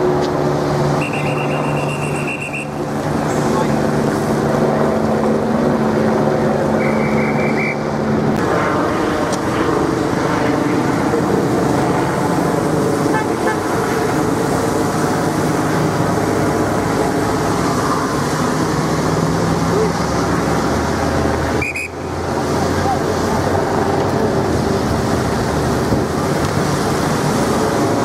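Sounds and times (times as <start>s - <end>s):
tyres hissing on wet road: 0.0s - 4.4s, 8.4s - 28.0s
motorcycle and car engines: 0.0s - 28.0s.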